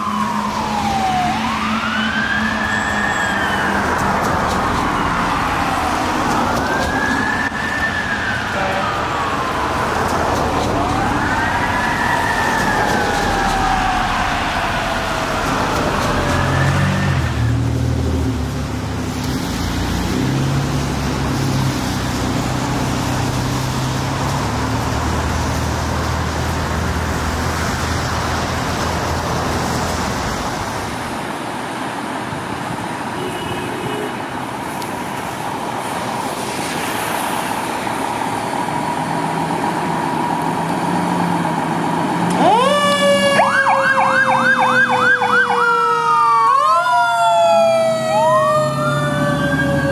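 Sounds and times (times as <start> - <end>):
siren yelping: 0.0 - 17.5, 42.4 - 49.9
fire truck siren: 0.0 - 30.1, 35.8 - 49.9
traffic noise: 0.0 - 49.9.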